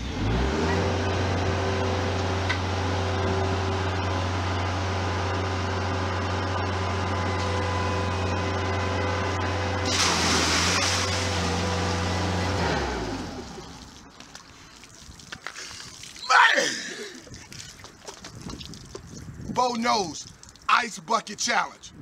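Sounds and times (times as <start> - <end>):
loader engine running: 0.0 - 13.8
engine shutting off: 0.0 - 14.0
water and ice pouring: 9.9 - 12.1, 13.4 - 21.3.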